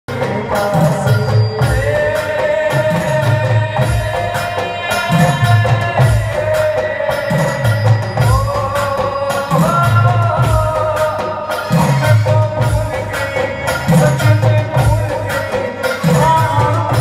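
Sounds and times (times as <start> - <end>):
devotional music over loudspeakers: 0.1 - 17.0
steady drum beat: 0.1 - 17.0.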